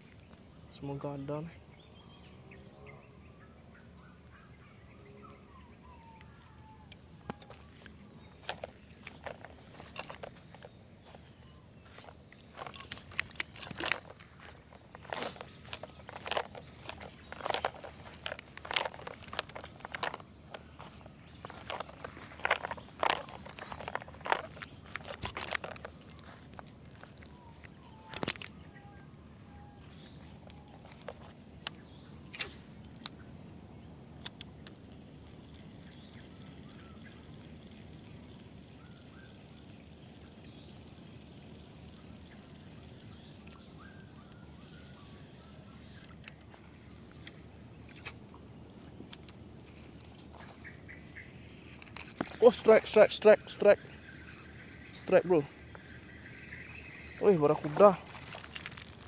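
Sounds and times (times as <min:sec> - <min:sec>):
insects chirring: 0:00.0 - 0:59.0
footsteps on gravel: 0:07.4 - 0:27.2, 0:51.7 - 0:54.5, 0:57.2 - 0:59.0
fishing rod and reel clicks: 0:12.0 - 0:26.6, 0:28.0 - 0:28.5, 0:51.7 - 0:54.4, 0:57.3 - 0:59.0.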